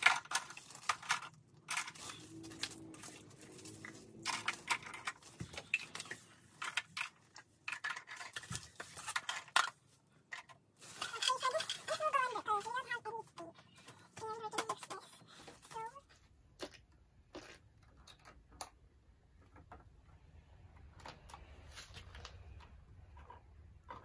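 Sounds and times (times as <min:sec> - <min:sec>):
plastic toy dishes clattering: 0:00.0 - 0:12.8, 0:13.8 - 0:15.8, 0:20.8 - 0:24.0.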